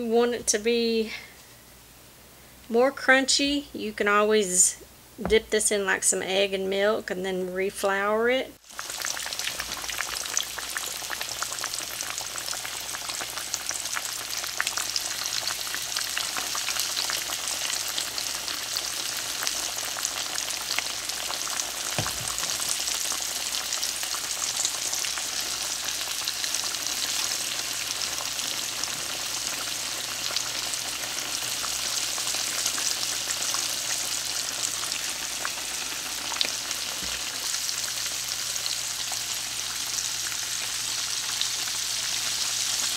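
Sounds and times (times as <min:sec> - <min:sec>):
chicken sizzling in oil: 0:08.6 - 0:42.9
oil crackling pops: 0:21.9 - 0:23.0.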